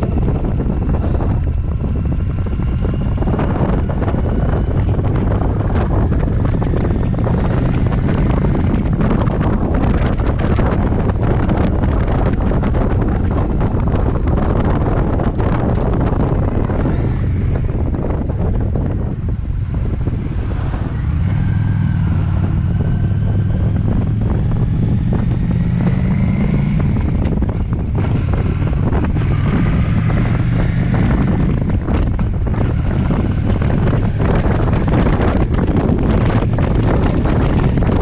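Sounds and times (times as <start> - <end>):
motorcycle engine accelerating: 0.0 - 38.0
wind noise on microphone: 0.0 - 38.0.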